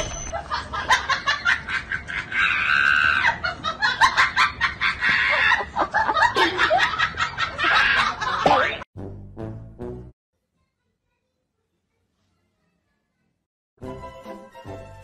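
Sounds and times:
people cackling laughter: 0.3 - 8.8.

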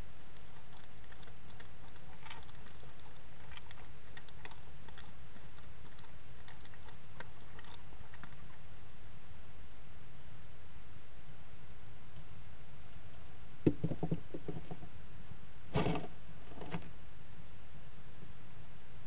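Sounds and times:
hedgehog crunching dry food: 0.0 - 8.8
steady low hum: 0.0 - 19.0.

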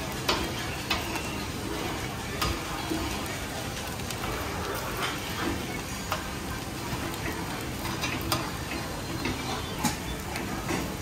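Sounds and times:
batter sizzling in pan: 0.0 - 11.0.

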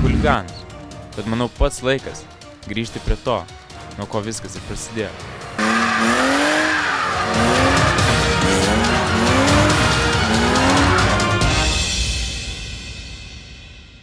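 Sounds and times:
car engine revving hard: 5.4 - 11.8
tyre squeal: 5.6 - 7.9.

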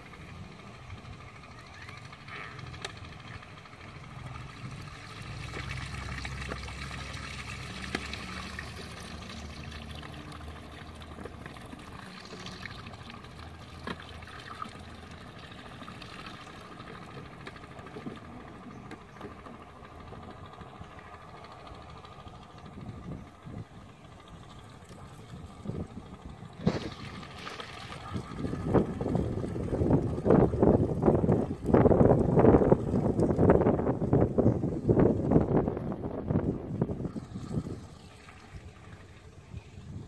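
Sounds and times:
low steady hum: 0.0 - 40.0
water sloshing and pouring: 2.1 - 34.0, 35.6 - 40.0
small splashes and knocks: 4.8 - 19.6, 26.5 - 29.3.

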